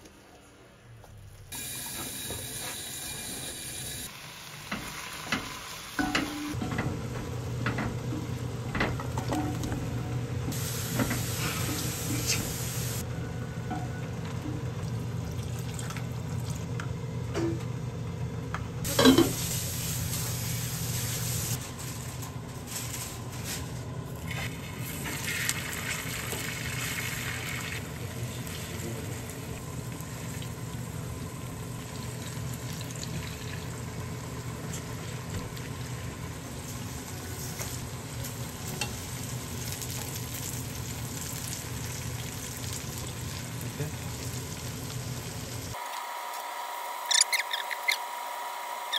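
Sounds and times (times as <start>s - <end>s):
food sizzling in oil: 18.9s - 21.6s, 36.6s - 45.8s.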